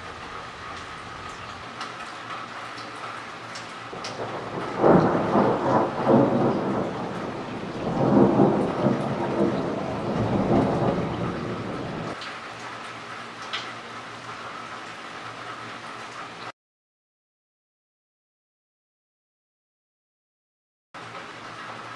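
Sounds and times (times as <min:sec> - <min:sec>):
steady rain: 0:00.0 - 0:16.5, 0:21.0 - 0:21.9
thunder rumbling: 0:03.9 - 0:12.2.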